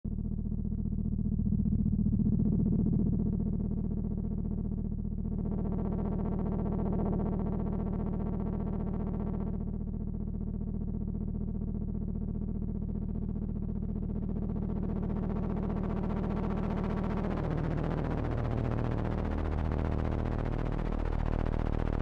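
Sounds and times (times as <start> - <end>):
synthesizer low drone: 14.2 - 22.0.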